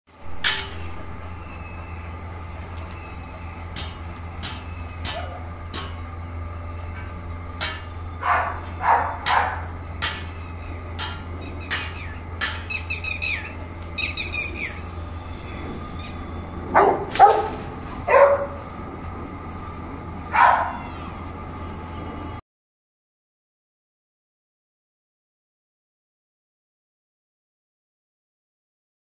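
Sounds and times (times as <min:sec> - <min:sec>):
steady low hum: 0:00.1 - 0:22.4
high falling calls: 0:00.7 - 0:22.2.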